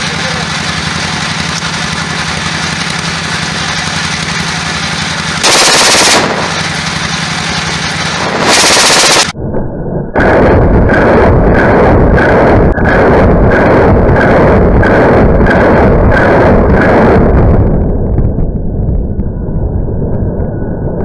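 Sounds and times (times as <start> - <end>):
steady low hum: 0.0 - 21.0
loud pistol shots: 5.4 - 7.0, 8.2 - 9.3.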